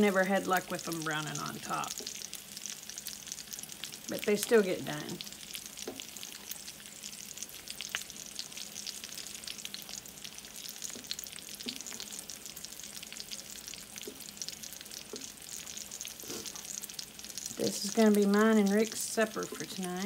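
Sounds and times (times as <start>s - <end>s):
eggs sizzling in a skillet: 0.0s - 20.0s
spatula scraping a skillet: 16.2s - 16.7s.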